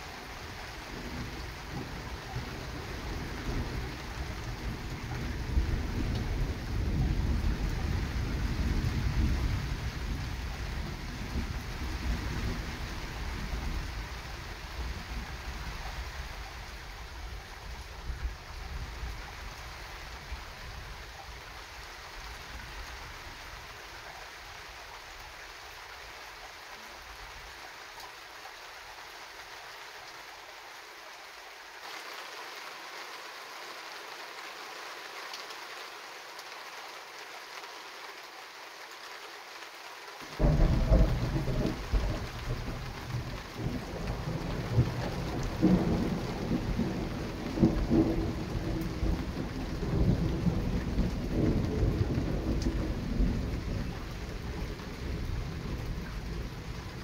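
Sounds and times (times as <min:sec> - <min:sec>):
steady rain hiss: 0:00.0 - 0:57.0
thunderclap and rumbling thunder: 0:00.9 - 0:14.0, 0:40.4 - 0:57.0.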